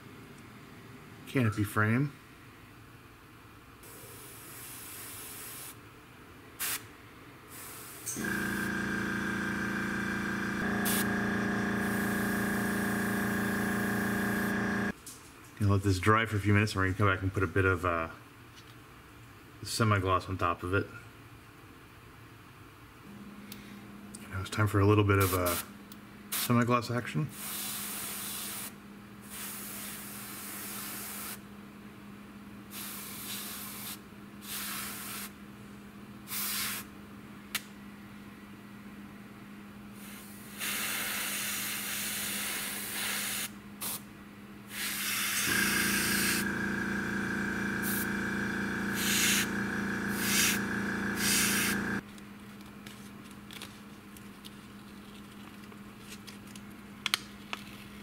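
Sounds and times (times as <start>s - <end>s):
air compressor motor humming: 8.1s - 15.0s, 45.4s - 52.0s
airbrush spraying hiss: 10.8s - 11.1s, 11.8s - 14.5s, 47.8s - 48.3s, 48.9s - 52.0s.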